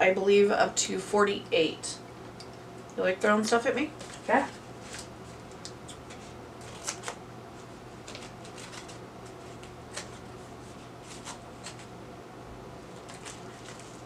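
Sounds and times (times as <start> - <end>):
wrapping crinkling: 4.0 - 11.9, 12.9 - 14.0.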